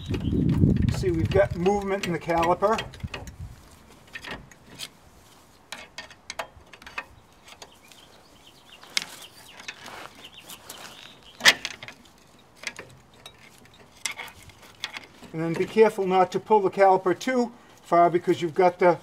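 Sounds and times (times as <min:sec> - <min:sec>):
screwdriver clicking and scraping metal: 0:00.0 - 0:05.0, 0:11.4 - 0:15.7.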